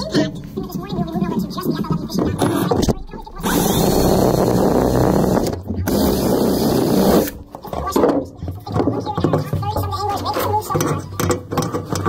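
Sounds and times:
cordless drill boring into plastic: 3.4s - 7.4s.

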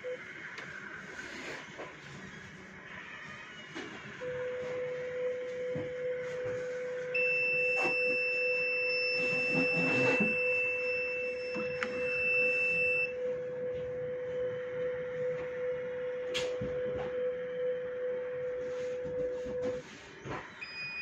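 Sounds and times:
long high electronic alarm beep: 7.2s - 13.2s.

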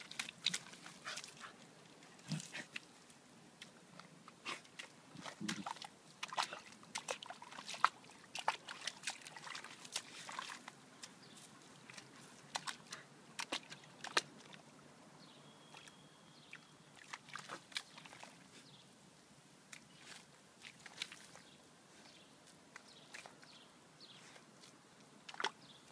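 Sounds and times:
scraping in dry soil: 0.0s - 13.6s.

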